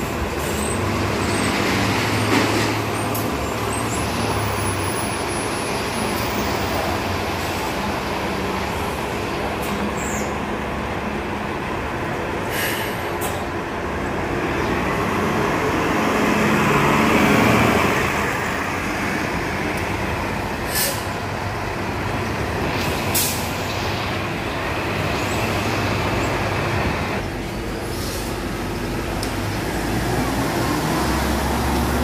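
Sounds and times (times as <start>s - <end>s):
bus engine pulling away: 0.0s - 32.0s
street traffic: 0.0s - 32.0s
short sharp hisses: 12.5s - 13.4s, 20.7s - 21.1s, 27.8s - 28.4s.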